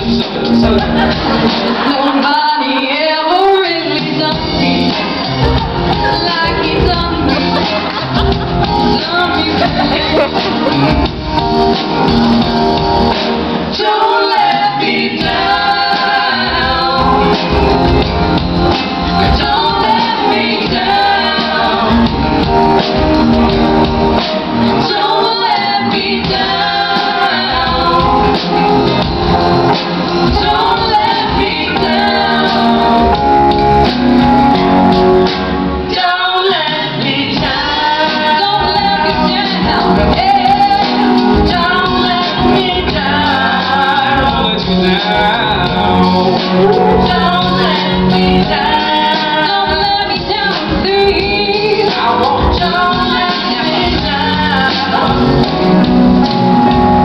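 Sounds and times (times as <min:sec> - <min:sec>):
group singing together: 0:00.0 - 0:57.0
live band playing: 0:00.0 - 0:57.0.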